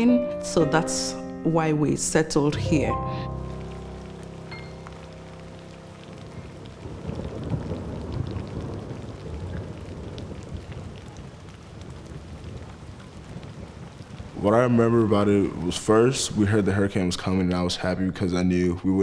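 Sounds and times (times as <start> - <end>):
held music chord: 0.0 - 7.8
heavy rain: 2.6 - 17.6
rolling thunder: 3.8 - 16.4.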